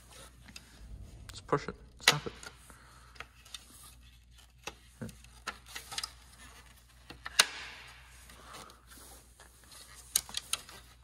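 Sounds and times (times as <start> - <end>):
plastic parts clicking and knocking: 7.0 - 7.9.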